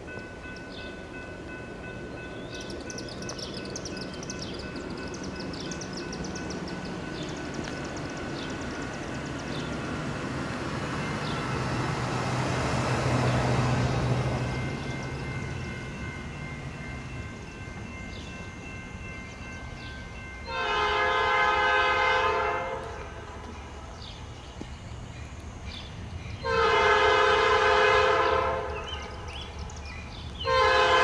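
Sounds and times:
diesel locomotive engine drone: 0.0s - 31.0s
train noise: 0.0s - 31.0s
birds chirping: 0.4s - 20.6s, 28.2s - 30.6s.

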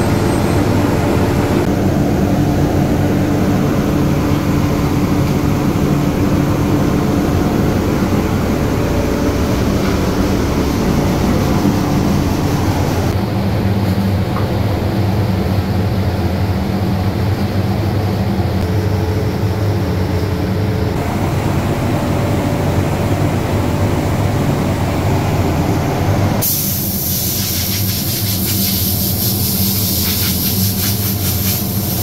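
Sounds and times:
extraction fan hum: 0.0s - 32.0s
air blow gun hissing: 26.4s - 32.0s.

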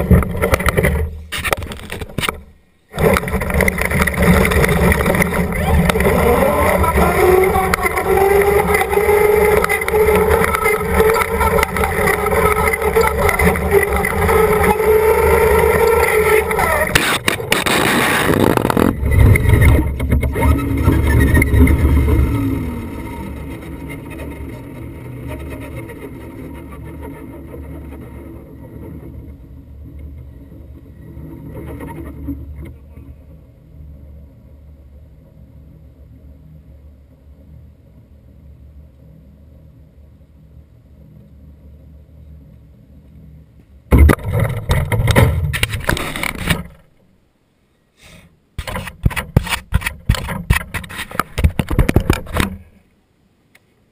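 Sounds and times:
toy truck scraping over asphalt: 0.0s - 32.8s, 44.4s - 47.0s, 48.6s - 52.6s
outdoor background noise: 0.0s - 53.9s
hand knocking and rubbing camera: 48.6s - 52.6s.

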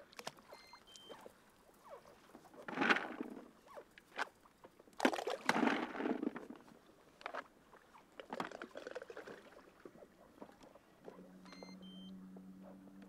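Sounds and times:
water splashing against boat: 2.5s - 12.7s.

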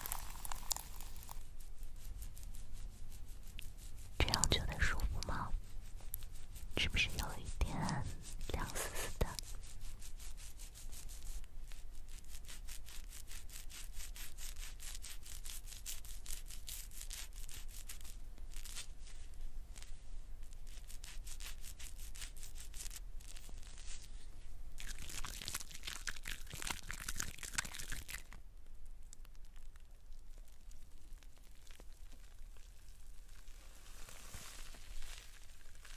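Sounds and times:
hands lathering shampoo in hair: 0.0s - 1.4s, 24.8s - 28.3s
cotton swab rubbing scalp: 0.0s - 28.4s, 30.4s - 35.9s.

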